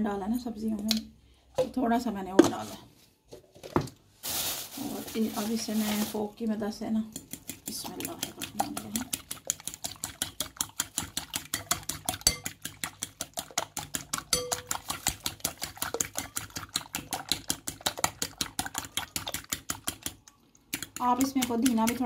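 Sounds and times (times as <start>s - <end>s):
fork beating eggs in glass bowl: 7.1s - 22.0s.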